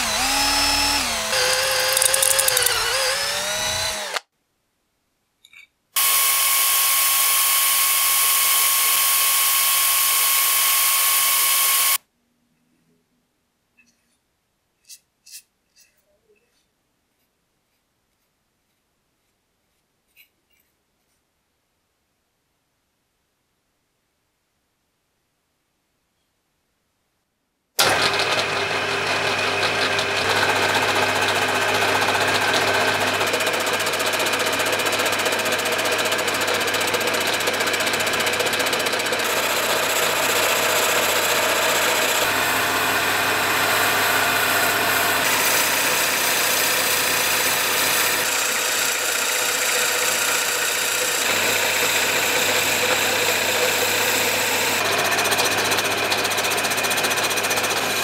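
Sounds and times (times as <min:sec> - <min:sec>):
lathe motor humming: 0:00.0 - 0:04.2, 0:39.2 - 0:58.0.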